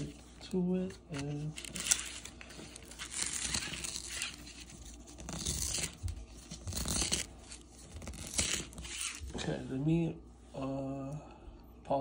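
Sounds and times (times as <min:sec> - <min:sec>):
cardboard envelope tearing: 0:01.1 - 0:09.4.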